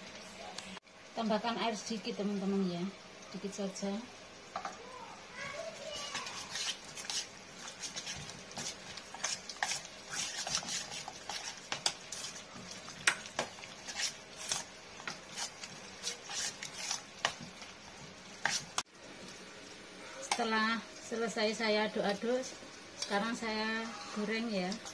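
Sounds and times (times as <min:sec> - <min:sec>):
metal spoon stirring in bowl: 0:06.1 - 0:17.4.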